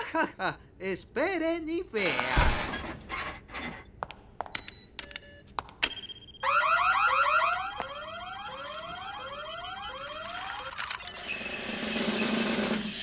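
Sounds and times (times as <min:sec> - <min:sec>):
steady high tone: 0:06.3 - 0:11.3
cartoon warning alarm whooping: 0:06.4 - 0:10.8.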